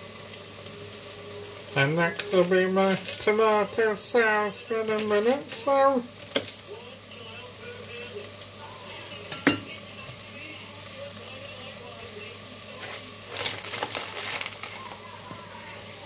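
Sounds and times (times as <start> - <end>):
chicken sizzling in a pot: 0.0 - 16.0.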